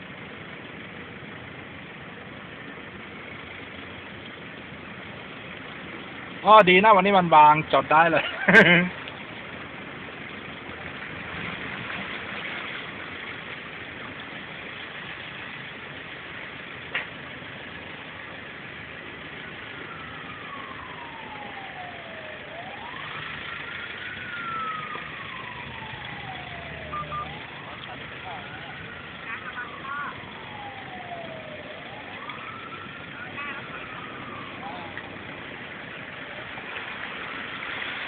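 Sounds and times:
car engine running: 0.0 - 38.0
water washing against car: 2.7 - 38.0
wailing tone: 24.4 - 35.1.

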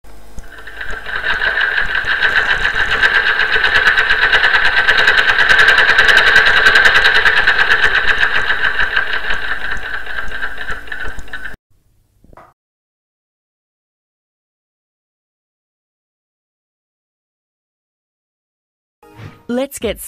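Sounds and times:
sewing machine stitching: 0.4 - 11.6.

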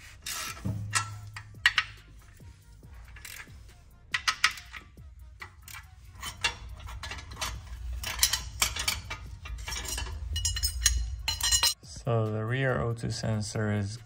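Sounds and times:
socket wrench clicking: 0.2 - 2.1, 3.0 - 11.8
metal bracket clinking and rattling: 0.2 - 11.8.

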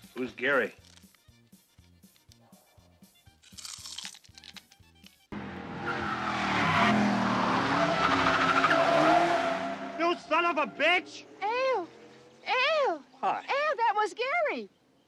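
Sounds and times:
car tyres squealing: 5.4 - 11.3.

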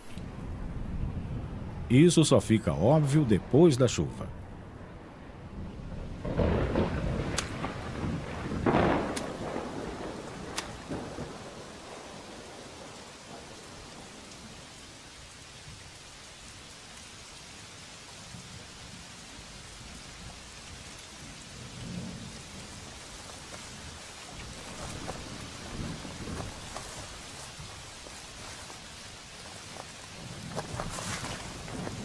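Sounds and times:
steady rain falling: 0.0 - 32.0
thunder rumbling: 4.4 - 14.6, 21.2 - 32.0.

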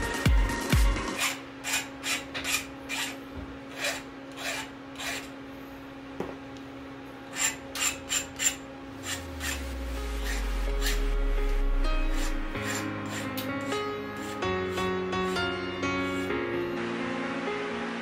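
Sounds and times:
scraping strokes on bike frame: 1.2 - 5.3, 7.3 - 14.4.

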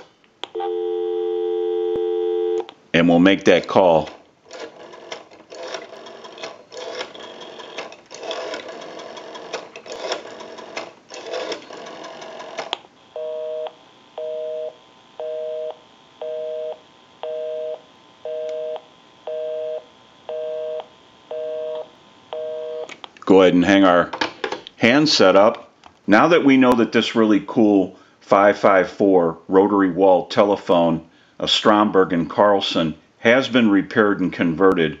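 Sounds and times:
telephone busy signal beeps: 0.5 - 2.6, 13.2 - 21.8, 22.4 - 22.9.

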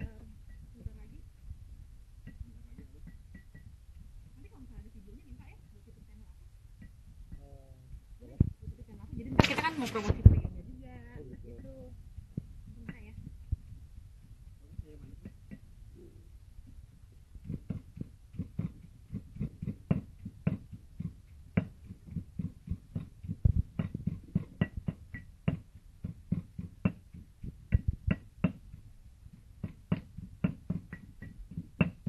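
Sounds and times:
pestle pounding in stone mortar: 2.2 - 4.7, 6.8 - 7.5, 14.7 - 15.7, 17.4 - 32.0.

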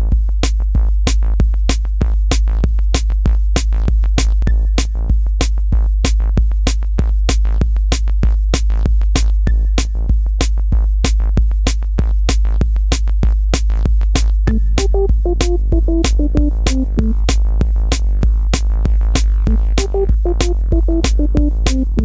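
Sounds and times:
music with steady beat and bass: 0.0 - 22.0.

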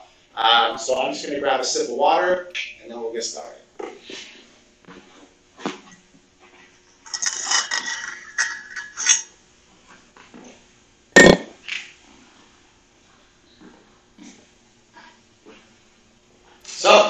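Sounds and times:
glass clinking and rattling: 7.0 - 9.3, 11.2 - 11.5.

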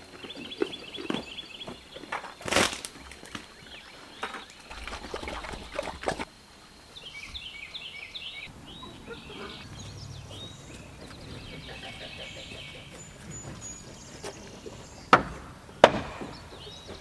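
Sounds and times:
pigs eating and crunching: 0.0 - 6.3
birds chirping: 0.0 - 17.0.

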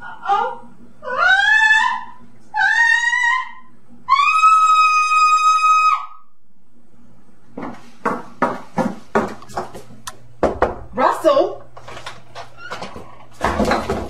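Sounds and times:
high-pitched scream: 1.0 - 6.3
knocking on a door: 10.4 - 10.9.

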